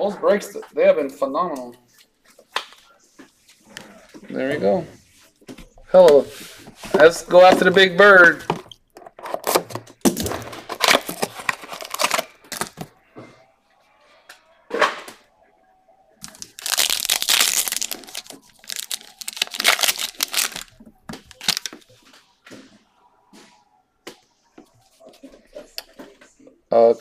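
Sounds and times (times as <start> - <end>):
foil wrapper crinkling and tearing: 10.7 - 12.9, 16.2 - 21.8.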